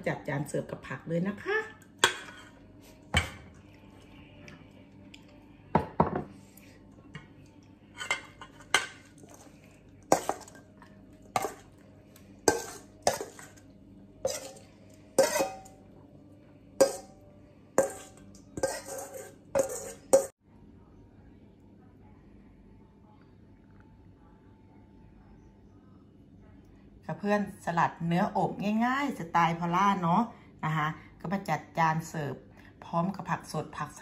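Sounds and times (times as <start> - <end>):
metal spoon clinking steel bowl: 10.1 - 10.6, 11.4 - 11.7, 12.5 - 13.6, 14.2 - 15.8, 16.8 - 17.2, 17.8 - 20.3.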